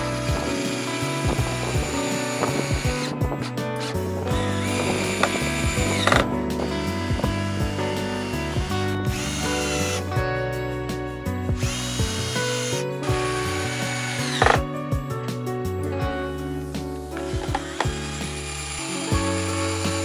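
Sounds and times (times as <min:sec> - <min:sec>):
cordless drill whining: 0:00.0 - 0:10.2, 0:11.5 - 0:14.7, 0:17.1 - 0:20.0
screws clicking as they seat: 0:04.6 - 0:06.3, 0:13.4 - 0:14.6, 0:17.2 - 0:20.0.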